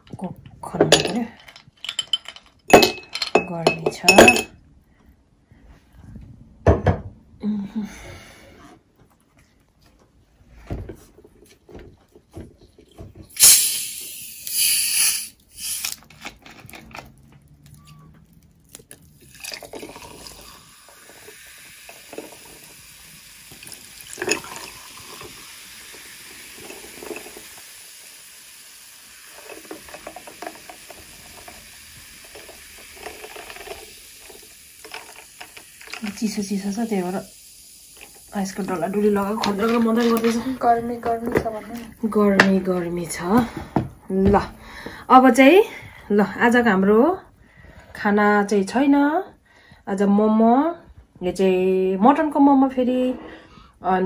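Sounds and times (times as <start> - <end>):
glass and bottle knocks: 2.0 - 4.5, 6.6 - 7.1
cola fizzing over ice: 13.3 - 16.0, 18.7 - 43.4
bottle hissing as opened: 13.3 - 16.1.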